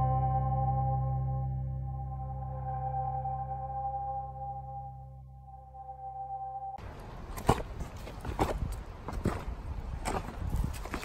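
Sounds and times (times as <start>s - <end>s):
background music held chord: 0.0s - 6.8s
noisy outdoor sound: 0.0s - 11.0s.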